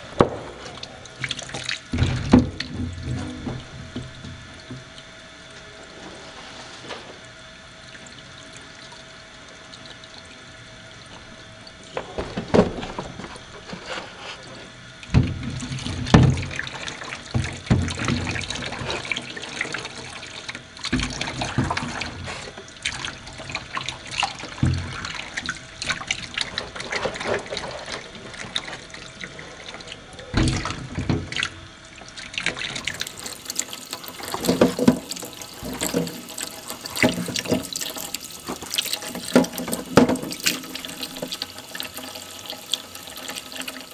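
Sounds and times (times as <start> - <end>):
water splashing: 22.8 - 43.9
tap water running into sink: 30.4 - 43.9.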